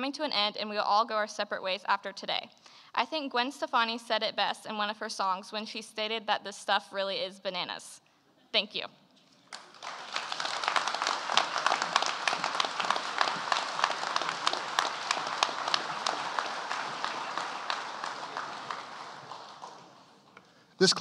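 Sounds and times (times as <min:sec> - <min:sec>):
audience applauding: 0:09.4 - 0:21.0.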